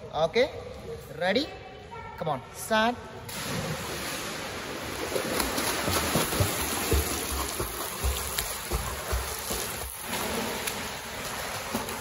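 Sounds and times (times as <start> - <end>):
water churning from kicking: 3.3 - 12.0
arm strokes slapping water: 4.9 - 12.0.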